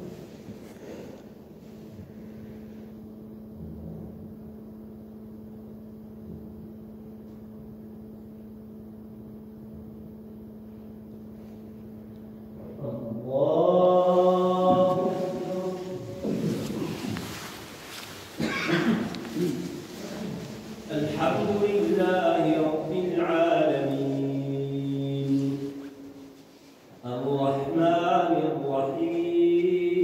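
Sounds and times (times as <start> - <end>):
steady low hum: 0.0 - 30.0
man chanting prayer: 12.6 - 17.9, 19.0 - 26.3, 27.0 - 30.0.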